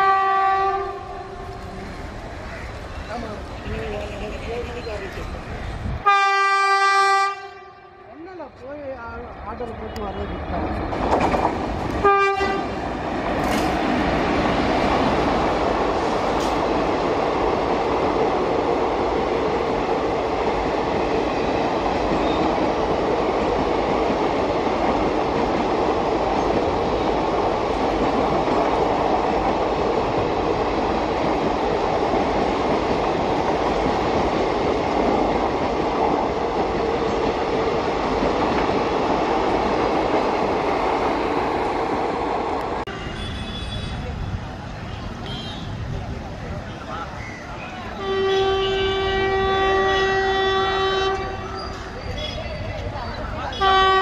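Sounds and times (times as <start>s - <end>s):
train horn toot: 0.0s - 1.4s, 6.0s - 8.1s, 12.0s - 12.8s, 42.9s - 44.0s, 45.2s - 45.8s, 48.0s - 51.5s, 53.5s - 54.0s
train wheels on rails: 8.5s - 54.0s.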